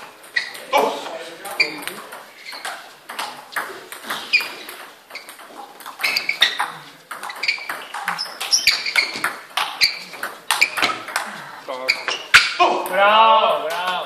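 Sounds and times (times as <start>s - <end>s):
ping pong ball clicking off paddles: 0.0s - 11.3s
distant table tennis hits: 0.0s - 13.0s.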